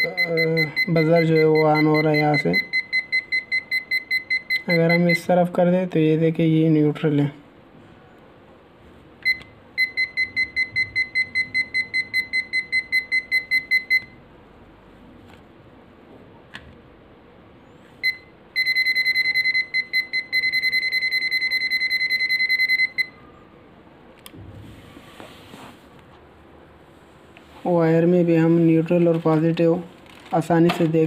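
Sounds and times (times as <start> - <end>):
meter buzzer beeping rapidly: 0.0 - 5.3, 9.2 - 14.2, 18.0 - 23.2.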